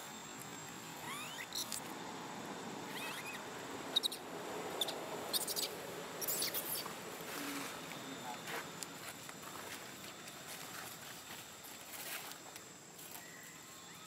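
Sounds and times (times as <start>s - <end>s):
baby monkey crying: 1.0s - 1.8s, 2.9s - 6.9s.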